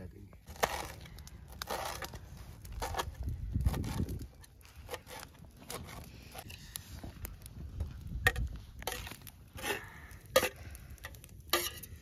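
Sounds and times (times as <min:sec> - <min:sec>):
metal utensil scraping steel pan: 0:11.5 - 0:12.0.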